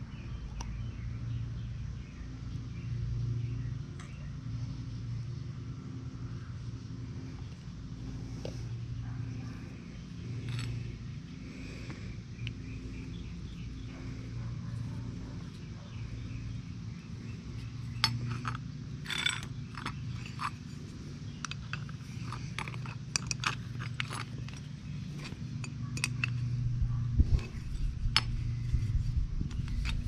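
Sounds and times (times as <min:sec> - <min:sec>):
steady low hum: 0:00.0 - 0:30.0
metal clicks and clinks: 0:10.4 - 0:10.9, 0:17.9 - 0:26.6.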